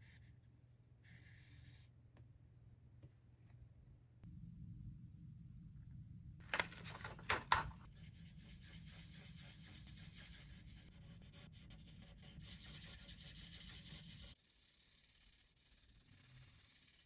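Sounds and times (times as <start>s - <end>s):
marker scratching on paper: 0.0s - 1.9s, 7.5s - 17.0s.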